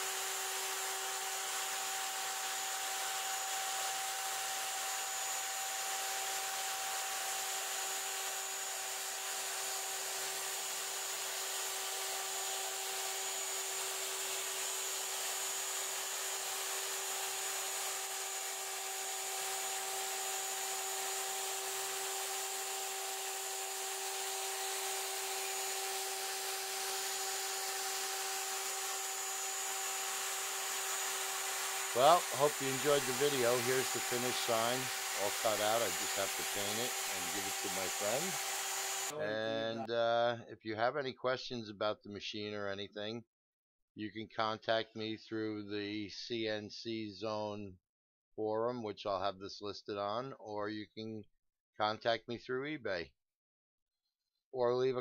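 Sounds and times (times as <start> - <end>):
router spindle whine: 0.0 - 39.8
rushing cutting noise: 12.9 - 39.8.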